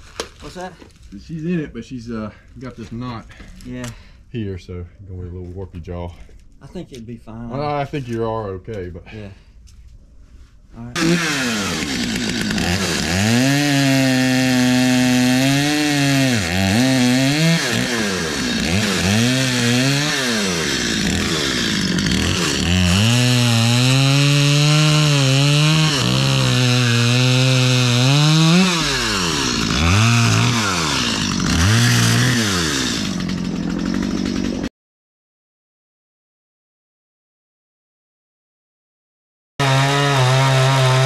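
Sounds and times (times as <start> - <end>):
chainsaw cutting log: 11.0 - 34.7, 39.6 - 41.0.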